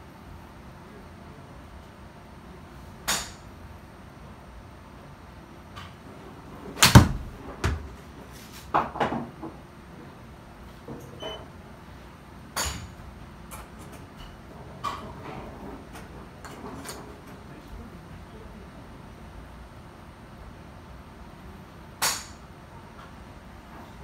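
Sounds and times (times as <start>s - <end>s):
golf club striking ball: 3.1s - 3.4s, 6.8s - 7.4s
ball thumping impact screen: 6.8s - 7.9s.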